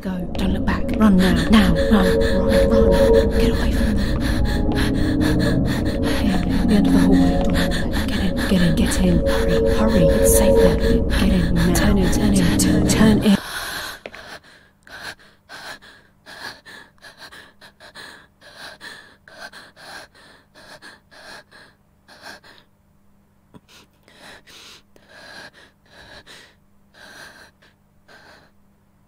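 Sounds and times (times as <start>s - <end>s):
low steady hum: 0.0s - 14.7s
person panting hard: 13.4s - 22.7s, 23.6s - 28.5s.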